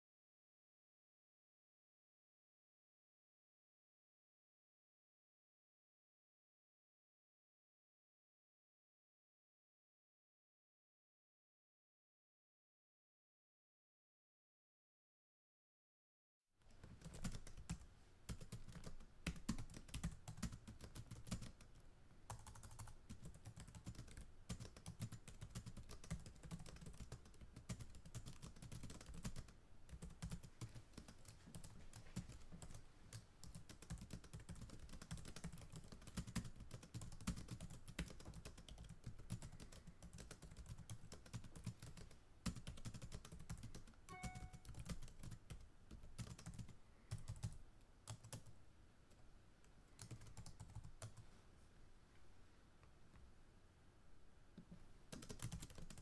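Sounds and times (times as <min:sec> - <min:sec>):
keyboard typing: 0:16.7 - 0:48.5, 0:50.0 - 0:51.2, 0:55.1 - 0:56.0.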